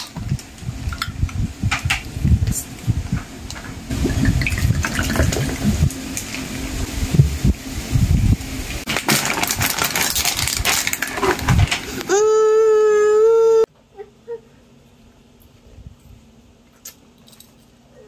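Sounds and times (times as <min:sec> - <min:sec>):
drink poured over ice fizzing: 0:04.1 - 0:05.7.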